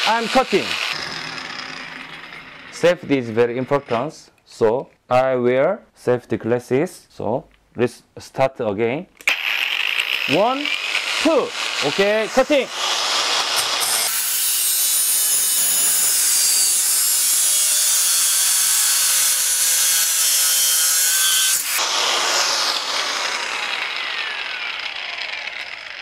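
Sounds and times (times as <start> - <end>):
grinder disc spinning down: 0.0 - 4.2, 9.2 - 15.8, 21.6 - 26.0
angle grinder cutting metal: 0.0 - 4.3, 9.2 - 26.0.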